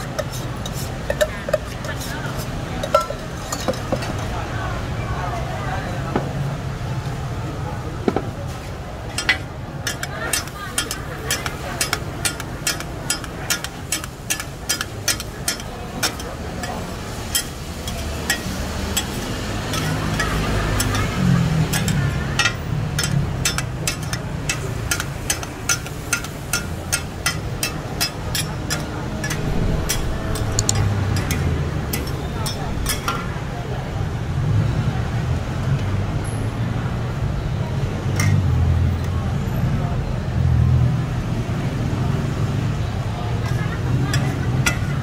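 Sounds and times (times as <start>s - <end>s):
metal spatulas clicking on griddle: 9.2s - 33.1s.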